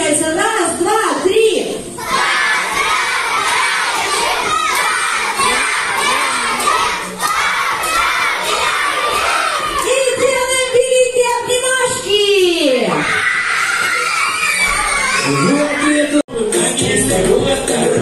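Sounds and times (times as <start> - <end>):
children shouting and cheering: 2.0 - 10.7, 12.9 - 16.2
voice in long held call: 5.2 - 7.0.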